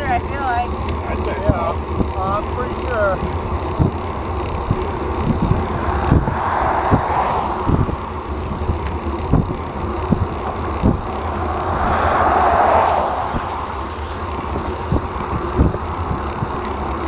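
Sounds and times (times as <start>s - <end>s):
cars passing: 0.0s - 17.0s
wind rumbling on microphone: 3.2s - 17.0s
low thumps: 5.2s - 15.8s.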